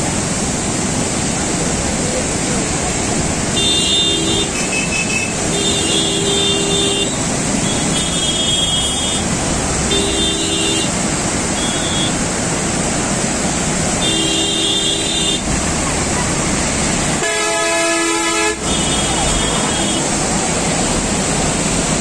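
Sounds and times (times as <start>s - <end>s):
river rushing: 0.0s - 22.0s
vehicle horns honking: 3.6s - 12.2s, 14.0s - 15.5s, 17.2s - 20.2s.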